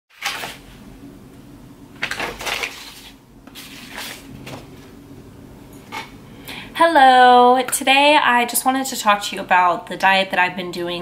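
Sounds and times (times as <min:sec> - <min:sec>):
low steady hum: 0:00.2 - 0:11.0.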